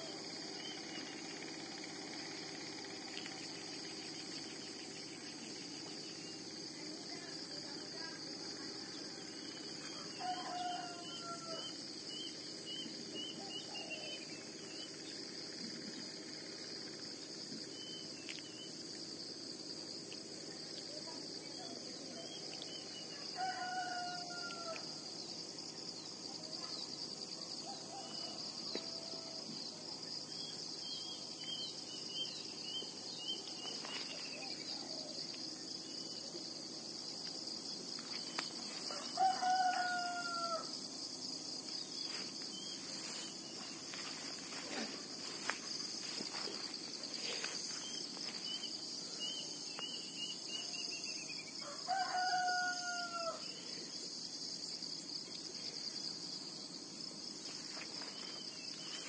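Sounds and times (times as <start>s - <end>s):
insects droning: 0.0s - 59.0s
rooster crowing: 10.0s - 11.8s, 23.2s - 24.8s, 38.8s - 40.8s, 51.6s - 53.5s.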